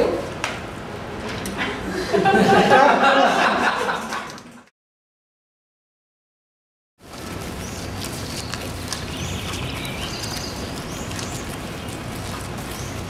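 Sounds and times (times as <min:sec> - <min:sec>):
footsteps on wet paving: 0:07.0 - 0:13.0
bird chirps: 0:07.6 - 0:12.0.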